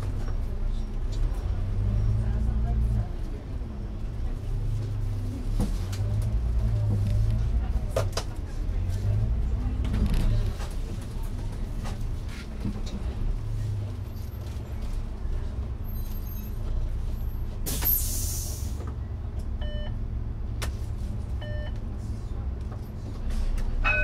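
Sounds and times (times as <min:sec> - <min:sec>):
bus engine and road rumble: 0:00.0 - 0:24.0
brief beep: 0:19.6 - 0:19.9, 0:21.4 - 0:21.8.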